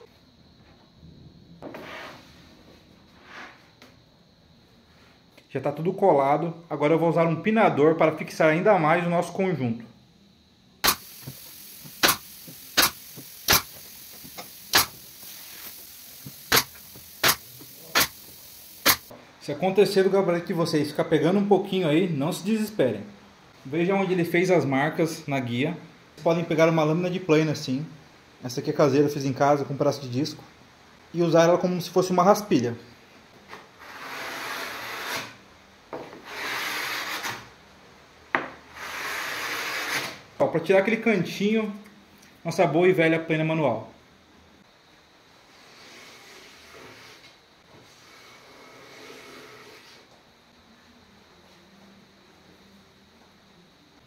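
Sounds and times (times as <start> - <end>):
faint hiss of air: 9.9 - 20.2, 44.6 - 54.0
pneumatic nailer firing: 10.8 - 19.1, 38.9 - 40.2.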